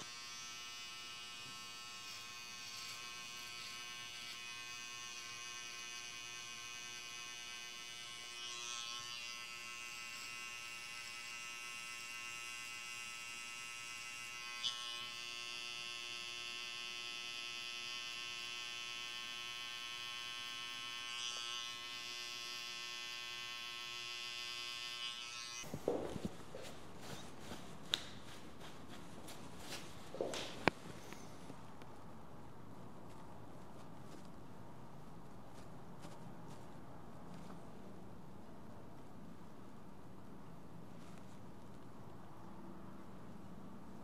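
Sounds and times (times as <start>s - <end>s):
electric hair clippers running: 0.0s - 25.7s.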